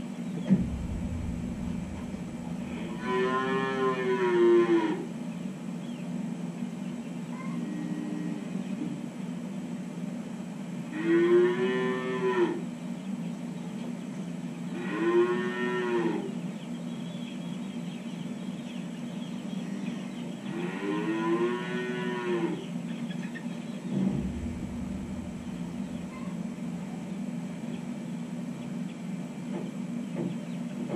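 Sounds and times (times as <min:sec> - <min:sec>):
steady low hum: 0:00.0 - 0:04.2, 0:23.5 - 0:28.6
low thump: 0:00.5 - 0:03.3, 0:23.9 - 0:26.4
calf mooing: 0:02.9 - 0:05.0, 0:10.9 - 0:12.6, 0:14.8 - 0:16.3, 0:20.5 - 0:22.6.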